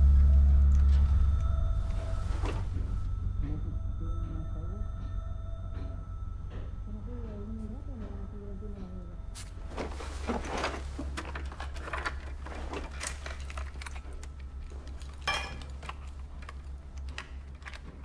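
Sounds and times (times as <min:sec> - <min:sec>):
steady low hum: 0:00.0 - 0:18.0
clicks of parts and hand tools: 0:11.0 - 0:18.0.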